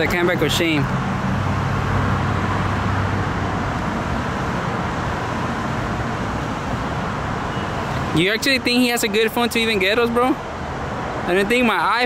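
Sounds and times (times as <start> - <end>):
traffic noise: 0.0 - 12.0.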